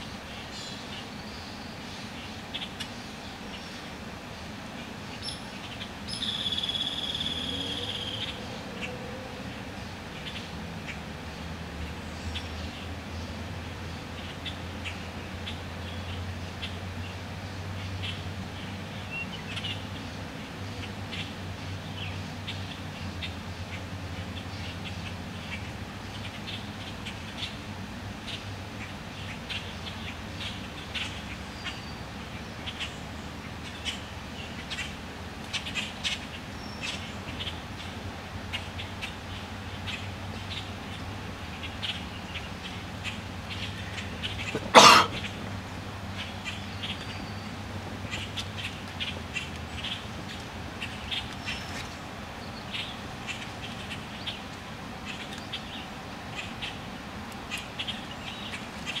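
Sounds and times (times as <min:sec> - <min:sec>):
heron harsh squawk: 0:44.4 - 0:45.4.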